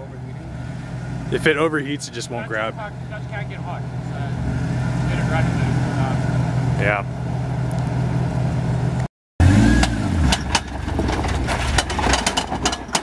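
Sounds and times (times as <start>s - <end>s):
car engine idling and revving: 0.0s - 13.0s
stones crunching under tires: 9.9s - 12.7s.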